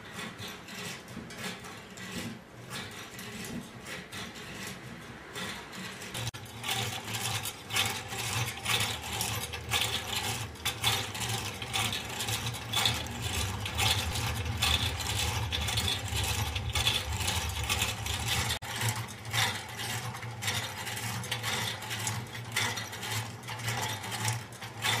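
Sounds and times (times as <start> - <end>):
wooden cams clicking and knocking: 0.0 - 25.0
steady low hum: 8.3 - 19.4.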